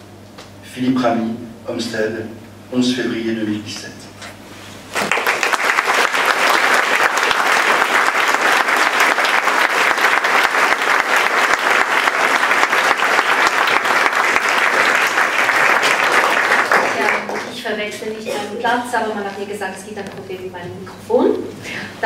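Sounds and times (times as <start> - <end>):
audience applauding: 4.9 - 17.6.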